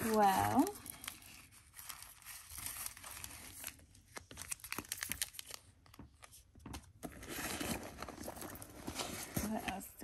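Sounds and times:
packaging crinkling: 0.0 - 6.3.

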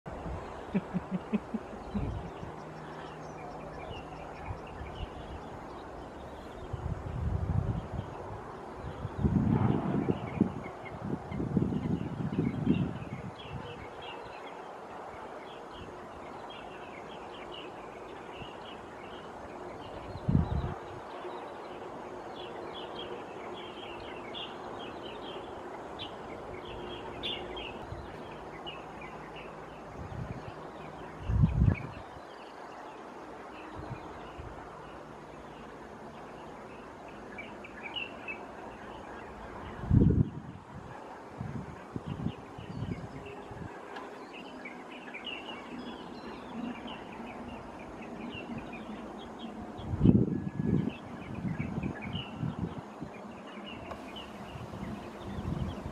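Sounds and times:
steady background hiss: 0.1 - 9.4, 50.9 - 55.9
birds chirping: 0.1 - 40.4, 50.8 - 55.9.

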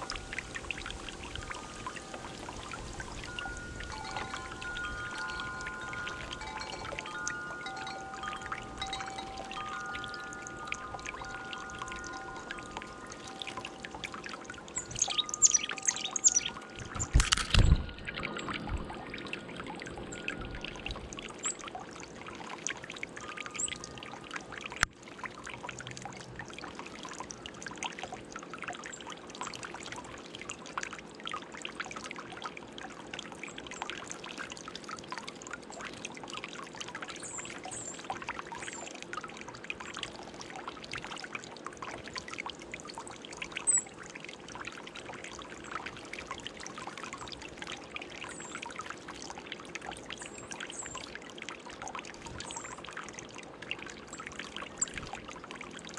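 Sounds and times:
water trickling in fountain: 0.0 - 55.9
high bird chirps: 14.8 - 17.2.

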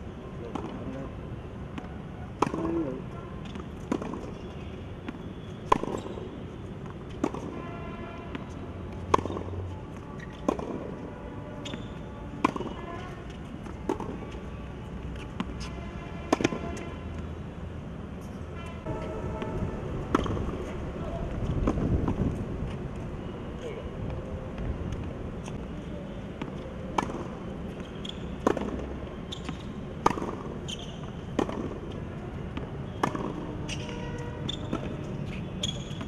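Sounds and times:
tennis racket striking ball: 1.8 - 2.8, 5.6 - 6.2, 8.3 - 9.6, 10.3 - 11.0, 11.6 - 14.2, 19.3 - 20.8, 26.4 - 31.9, 33.0 - 35.0
ball bouncing on hard court: 20.1 - 20.7, 26.4 - 31.9.

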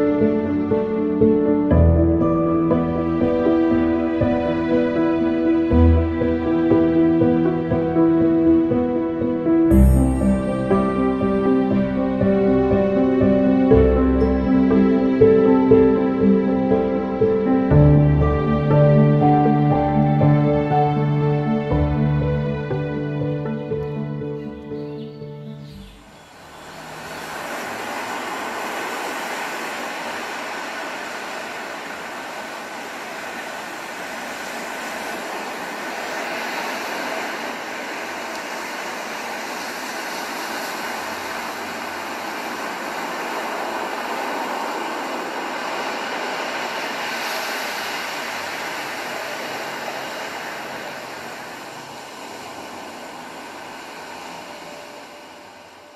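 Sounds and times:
steady rushing sound: 26.0 - 55.9.

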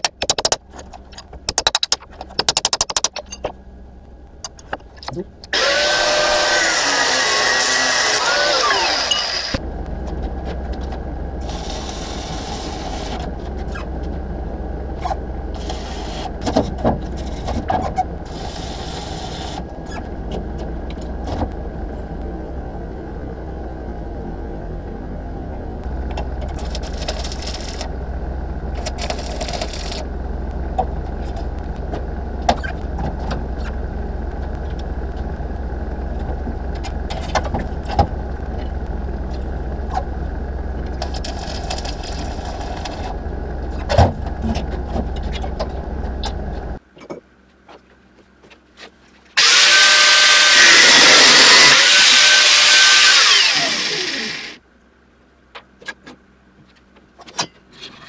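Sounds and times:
steady low hum: 0.0 - 6.6, 8.6 - 49.4
loud machine with wavering whine: 5.5 - 13.8, 49.4 - 54.6.

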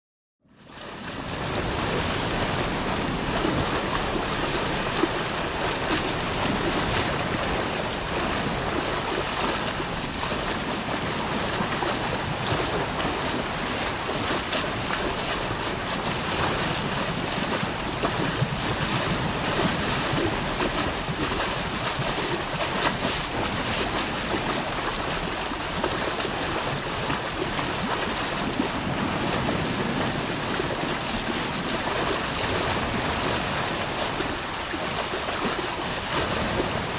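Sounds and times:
water rushing over a weir: 0.5 - 36.9.

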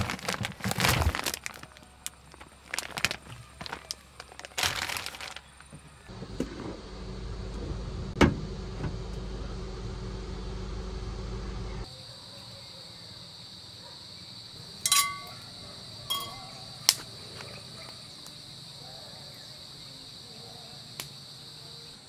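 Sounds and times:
insects chirring: 0.0 - 7.5, 11.8 - 22.0
low hum: 6.1 - 11.8
frying pan clanking on grill grate: 14.9 - 15.4.

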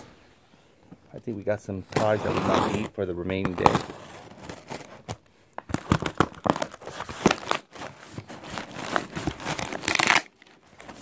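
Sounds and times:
tape and cardboard tearing: 5.8 - 10.3.

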